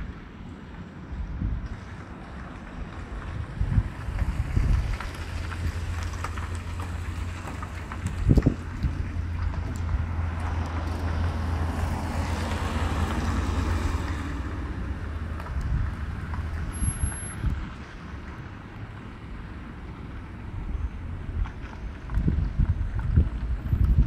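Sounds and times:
wind rumbling on microphone: 0.0 - 24.0
vehicle rushing past: 3.2 - 19.3.

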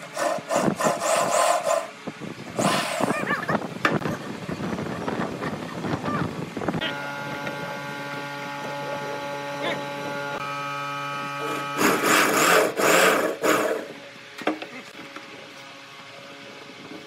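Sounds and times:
electric drill motor whine: 6.8 - 14.0
drill boring into wood: 11.2 - 14.0.

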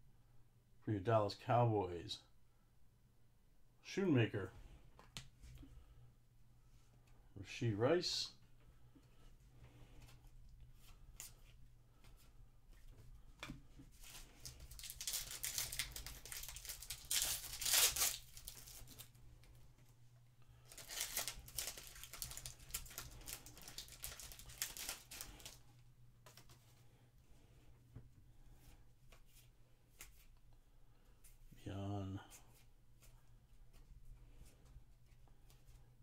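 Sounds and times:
foil wrapper tearing and crinkling: 14.4 - 19.1, 20.7 - 25.6.

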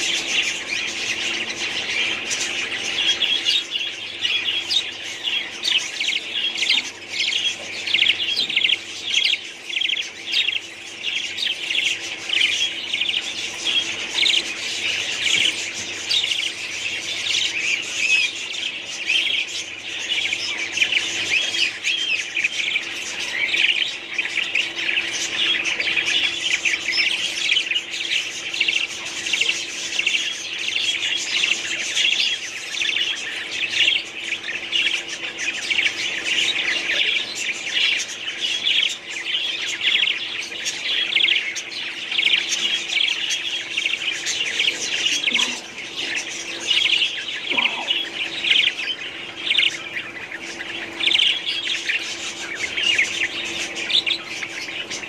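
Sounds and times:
budgerigars chattering: 0.0 - 55.0.

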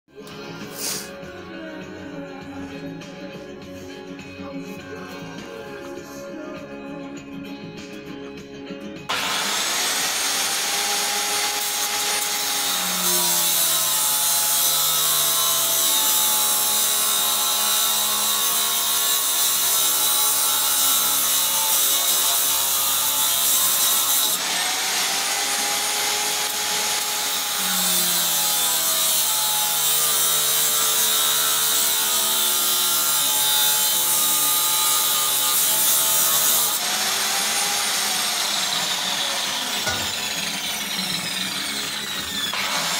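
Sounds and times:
angle grinder cutting steel: 9.1 - 42.9.

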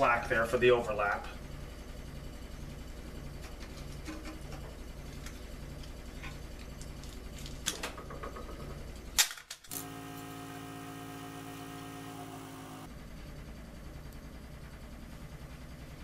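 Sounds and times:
pulsing low hum: 9.8 - 12.9.

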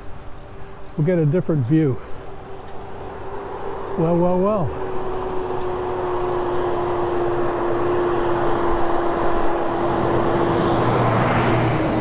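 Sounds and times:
steady hum: 0.0 - 10.7
garbage truck passing: 0.0 - 12.0.

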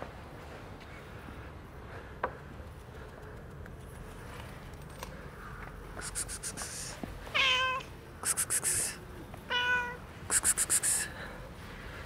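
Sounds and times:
cat meowing: 7.3 - 7.9, 9.5 - 10.0.

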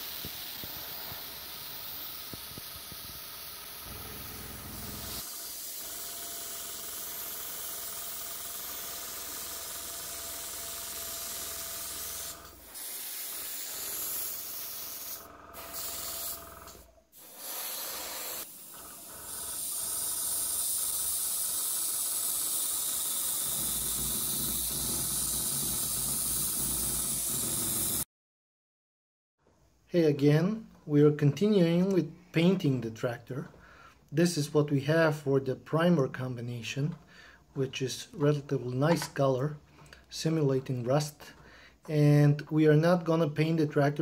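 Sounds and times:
airbrush spraying hiss: 0.0 - 7.3, 11.0 - 28.0.

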